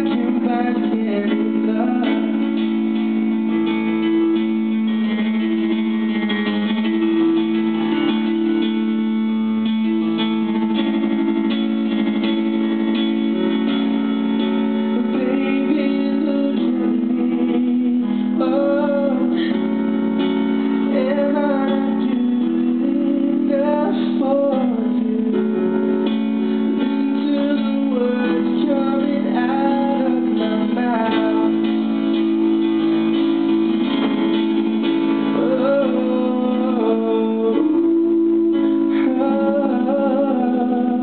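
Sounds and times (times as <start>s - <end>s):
man singing: 0.0s - 3.2s, 14.8s - 26.1s, 26.7s - 32.4s, 35.2s - 41.0s
electronic keyboard chords: 0.0s - 41.0s.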